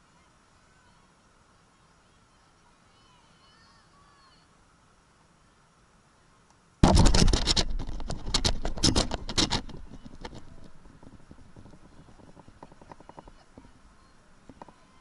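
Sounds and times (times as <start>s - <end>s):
camera mount clatter: 6.8s - 10.5s
rattling clicks and scraping: 6.8s - 13.4s.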